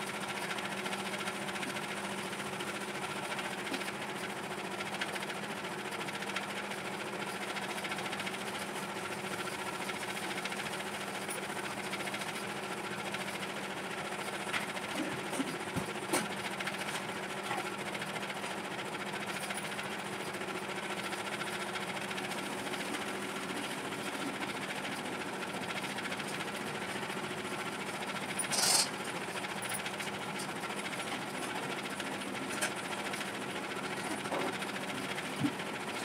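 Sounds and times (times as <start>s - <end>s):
small electric motor humming: 28.3s - 29.1s.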